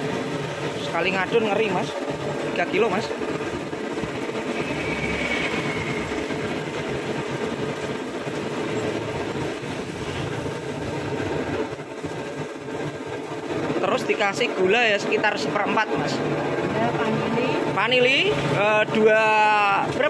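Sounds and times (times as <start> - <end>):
mechanical rumble: 0.0 - 15.0.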